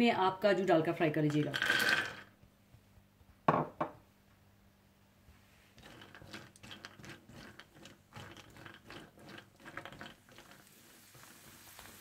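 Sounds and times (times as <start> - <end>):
cashews crackling in hot ghee: 5.8 - 12.0.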